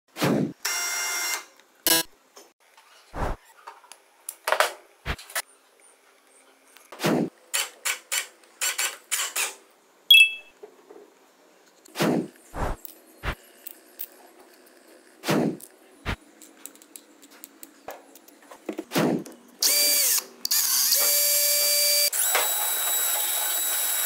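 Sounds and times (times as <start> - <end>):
short metallic ping: 10.1 - 10.5.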